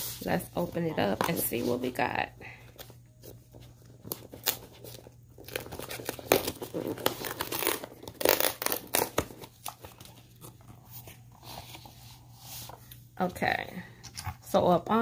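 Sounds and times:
cardboard tearing and crinkling: 3.9s - 11.7s.

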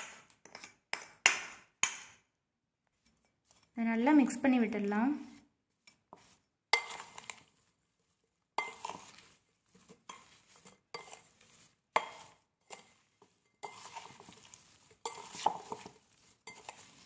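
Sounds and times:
spoon scraping in glass bowl: 5.3s - 7.7s, 8.6s - 17.0s.

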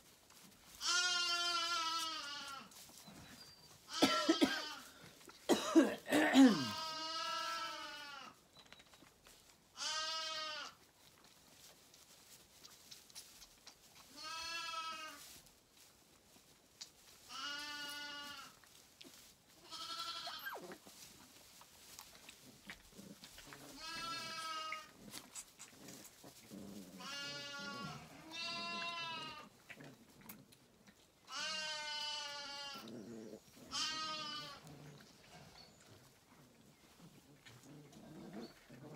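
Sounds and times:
lambs bleating: 0.8s - 2.8s, 3.9s - 5.0s, 6.5s - 8.4s, 9.8s - 10.8s, 14.1s - 15.3s, 17.3s - 18.6s, 19.6s - 20.8s, 23.3s - 25.9s, 27.0s - 29.5s, 31.3s - 33.0s, 33.6s - 35.6s.

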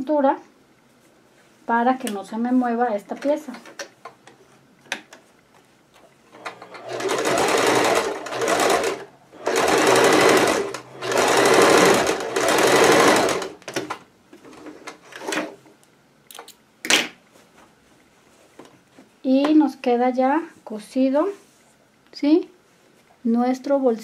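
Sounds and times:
sewing machine running: 6.3s - 13.8s.

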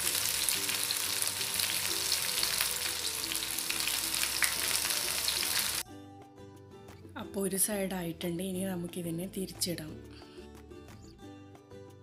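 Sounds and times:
fish sizzling in hot oil: 0.0s - 5.8s.

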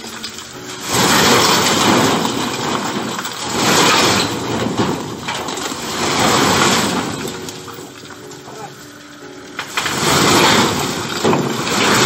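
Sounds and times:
rubble stones clattering onto ground: 0.0s - 12.0s.

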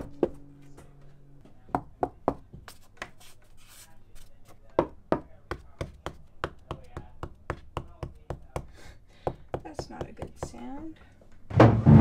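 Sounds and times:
knuckles rapping on wood: 4.8s - 8.7s, 9.3s - 10.8s.

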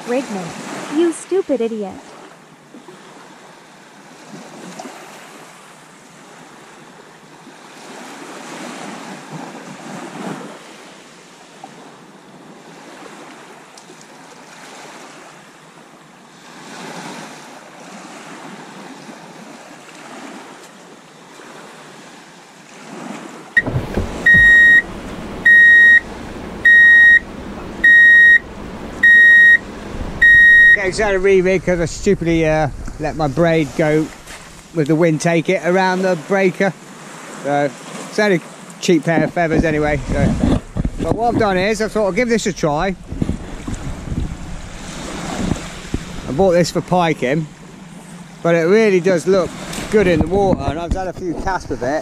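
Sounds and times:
waves washing up shingle beach: 0.0s - 52.0s
loud electronic beep: 23.6s - 28.4s, 29.0s - 29.6s, 30.2s - 30.9s.

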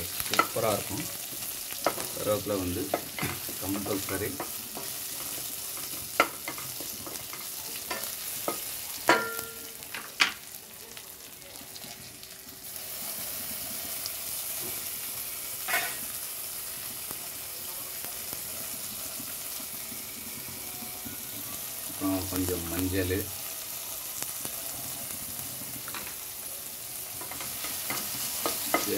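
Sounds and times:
oil sizzling in a pan: 0.0s - 28.9s
spoon knocking against pan: 6.2s - 10.4s.

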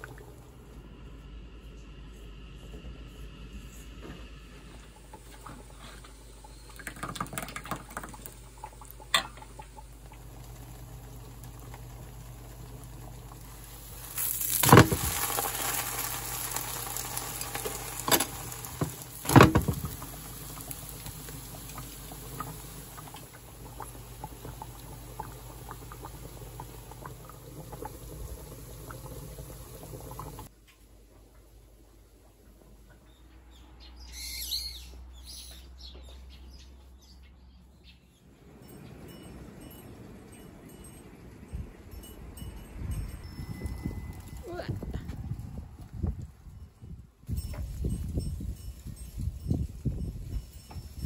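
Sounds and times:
batter sizzling in a pan: 10.2s - 30.5s.

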